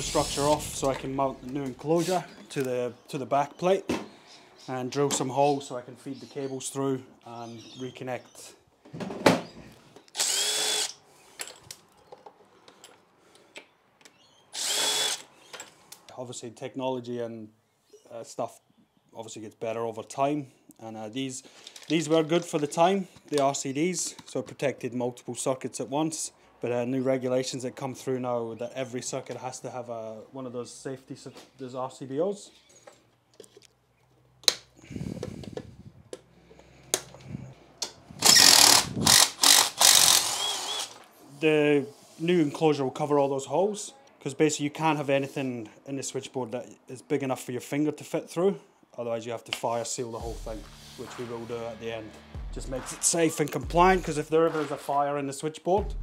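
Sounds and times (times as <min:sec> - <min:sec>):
cordless drill whine: 0:00.0 - 0:02.1, 0:10.1 - 0:11.0, 0:14.5 - 0:15.3, 0:38.2 - 0:41.1
small clicks and handling knocks: 0:32.8 - 0:38.0
sharp tool clicks: 0:37.8 - 0:41.0.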